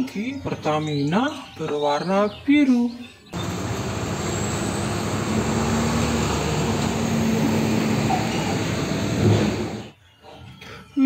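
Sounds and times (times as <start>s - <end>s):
tanker truck driving: 3.4s - 9.9s.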